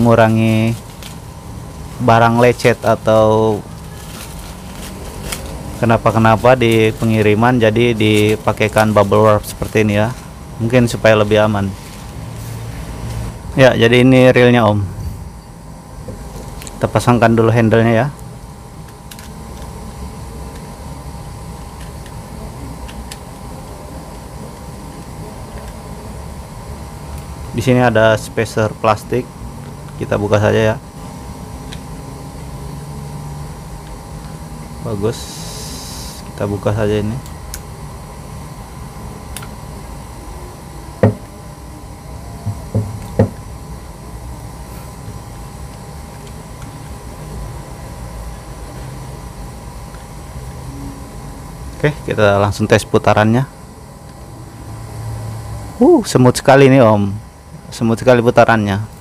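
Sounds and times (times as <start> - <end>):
low rumble with hum: 0.0 - 27.5
low background hum: 0.0 - 59.0.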